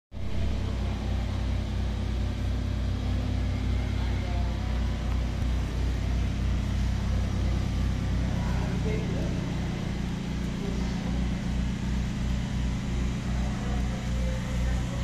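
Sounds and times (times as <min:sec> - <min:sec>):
low motor hum: 0:00.1 - 0:15.0
faint voices: 0:00.2 - 0:15.0.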